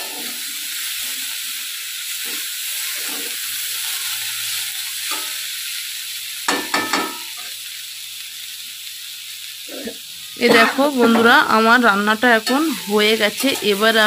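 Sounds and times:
metal spatula scraping: 0.0 - 0.5, 2.2 - 4.1, 12.4 - 14.0
vegetables sizzling in oil: 0.0 - 14.0
spatula knocking against pan: 6.5 - 7.2.

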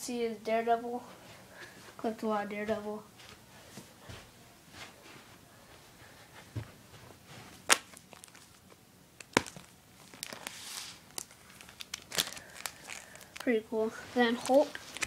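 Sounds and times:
plastic sleeves crinkling: 7.6 - 15.0
soft rustle: 10.3 - 11.6, 12.4 - 15.0.

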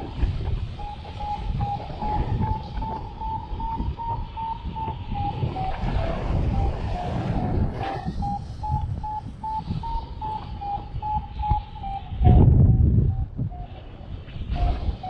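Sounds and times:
wind rumble on microphone: 0.0 - 15.0
variometer short beeps: 0.8 - 5.7, 7.4 - 12.4.

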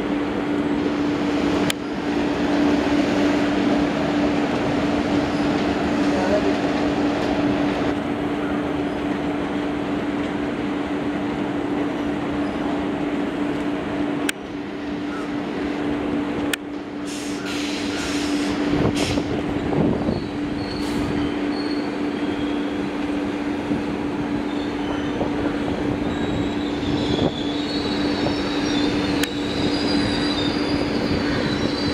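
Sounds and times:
train wheels rumbling: 0.0 - 31.9
wheel squeal: 20.0 - 22.8, 26.0 - 31.9.

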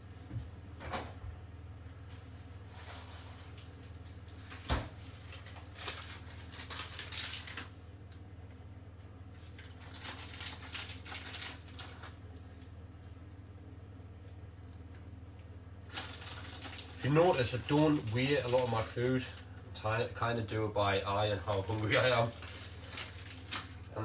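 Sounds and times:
low steady hum: 0.0 - 24.0
plastic wrapper rustling: 2.8 - 7.8, 9.4 - 12.4, 15.9 - 19.4, 21.4 - 24.0.

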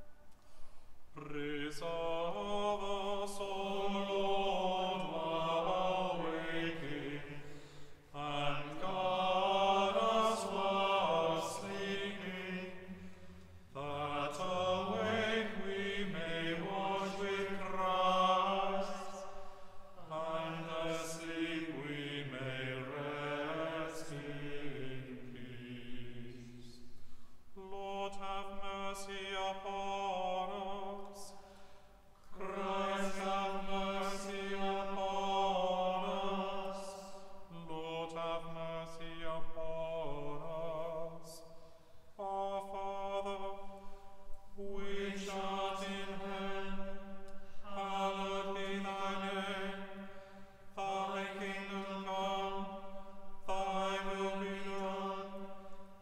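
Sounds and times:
small choir chanting: 1.1 - 56.0.

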